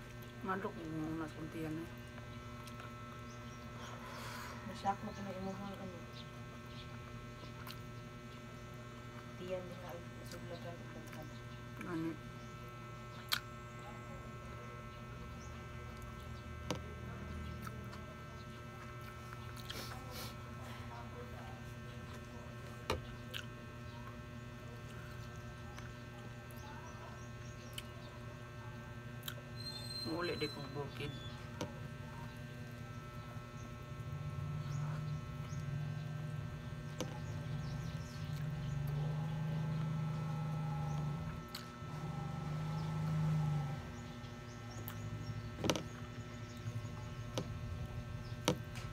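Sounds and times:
steady low hum: 0:00.0 - 0:48.9
person chewing rice: 0:18.8 - 0:20.6, 0:22.0 - 0:26.6, 0:40.9 - 0:41.8.

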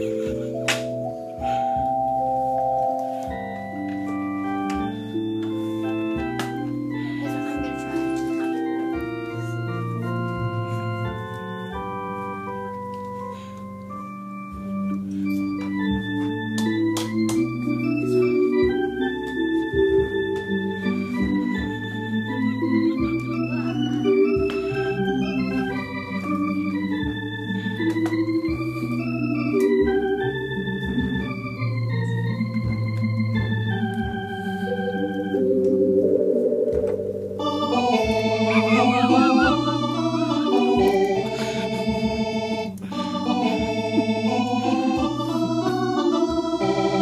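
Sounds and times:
organ playing chords: 0:00.0 - 0:47.0.

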